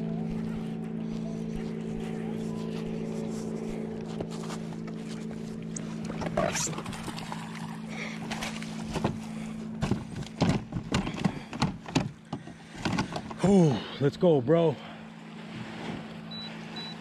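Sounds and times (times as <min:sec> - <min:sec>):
steady low hum: 0:00.0 - 0:17.0
water sloshing: 0:00.0 - 0:17.0
fish thrashing and splashing: 0:04.2 - 0:13.4.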